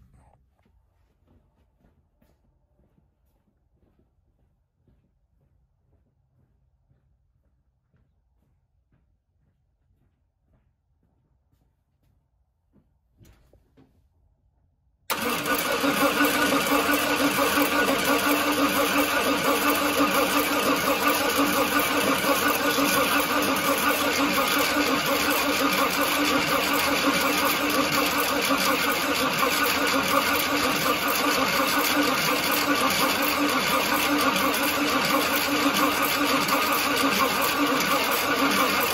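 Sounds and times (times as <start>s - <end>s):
starter motor cranking engine: 15.1s - 38.9s.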